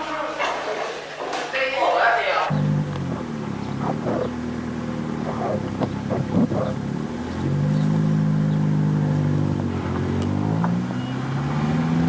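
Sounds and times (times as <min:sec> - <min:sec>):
bus engine running: 0:02.5 - 0:12.0.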